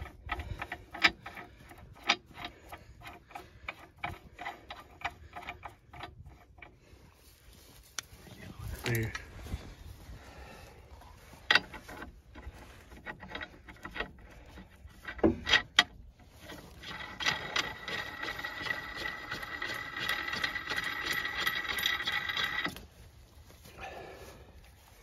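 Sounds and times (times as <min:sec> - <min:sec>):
nut spinning on threaded rod: 0:00.0 - 0:06.8, 0:11.5 - 0:22.8.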